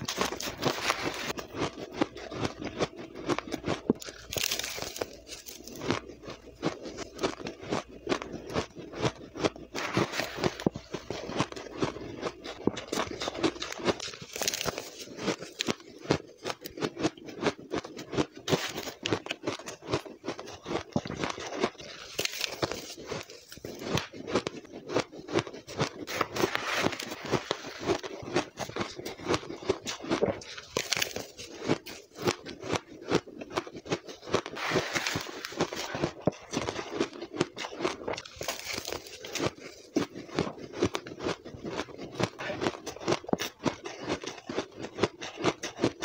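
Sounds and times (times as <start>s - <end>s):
metal spoon scooping ice: 0.0s - 6.2s, 25.4s - 32.0s, 34.1s - 39.9s
crunching and chewing ice: 0.0s - 46.0s.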